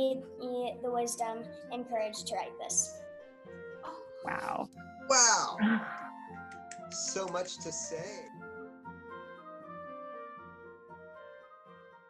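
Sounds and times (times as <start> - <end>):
sustained instrumental music: 3.0 - 11.6.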